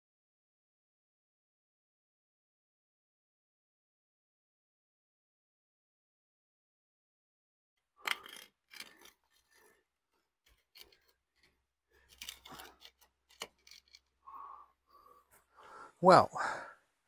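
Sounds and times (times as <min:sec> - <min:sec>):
plywood pieces scraping on asphalt: 0:08.0 - 0:09.8, 0:10.4 - 0:14.2.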